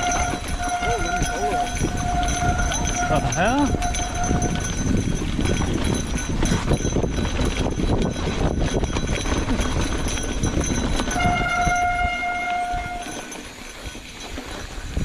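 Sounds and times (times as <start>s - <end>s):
bike brake squealing: 0.0s - 5.0s, 11.1s - 13.4s
wind and tyre rumble: 0.0s - 15.0s.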